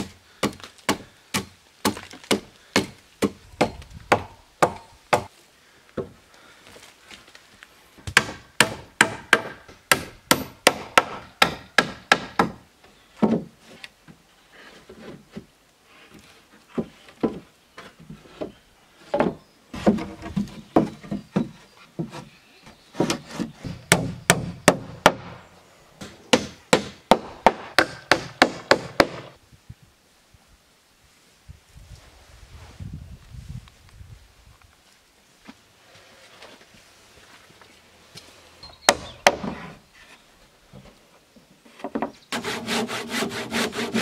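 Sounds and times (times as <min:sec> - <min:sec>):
hand tool striking wood: 0:08.1 - 0:12.6.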